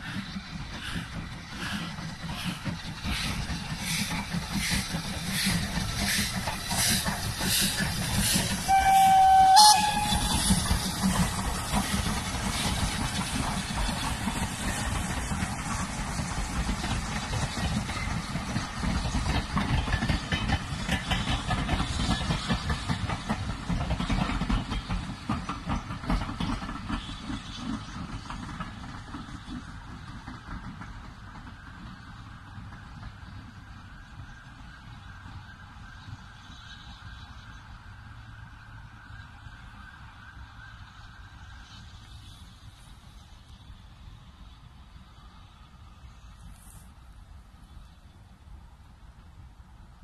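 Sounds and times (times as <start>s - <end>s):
coaches rumbling on rails: 0.0s - 50.0s
steam locomotive exhaust chuffs: 0.0s - 50.0s
steam whistle: 8.6s - 10.6s.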